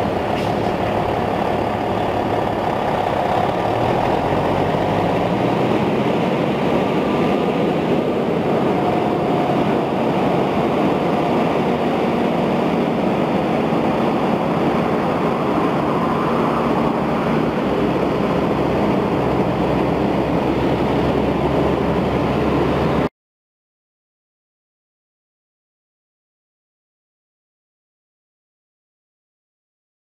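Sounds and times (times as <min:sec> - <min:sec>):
constant rushing noise: 0:00.0 - 0:23.1
truck diesel engine running: 0:00.0 - 0:23.1.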